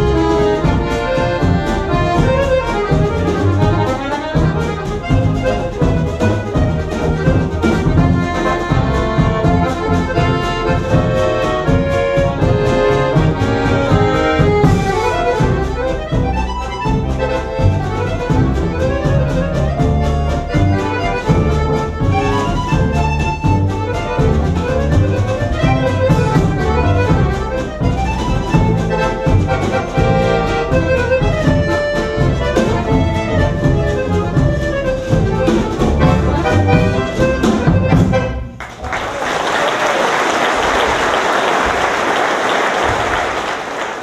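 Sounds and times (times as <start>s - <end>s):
accordion waltz with bass and drums: 0.0s - 38.8s
audience applauding: 38.5s - 44.0s.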